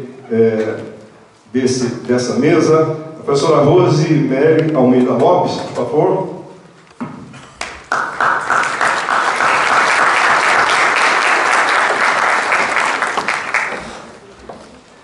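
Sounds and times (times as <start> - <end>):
audience applauding: 7.6 - 14.2.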